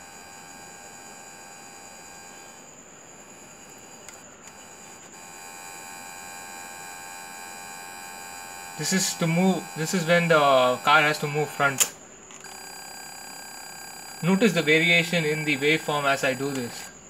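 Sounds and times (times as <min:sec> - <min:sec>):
steady electronic buzz: 0:00.0 - 0:17.0.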